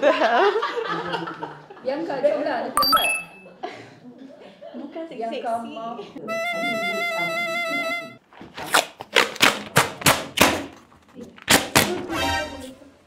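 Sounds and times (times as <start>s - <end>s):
paper tape ripping off roll: 8.5s - 10.8s, 11.4s - 11.9s.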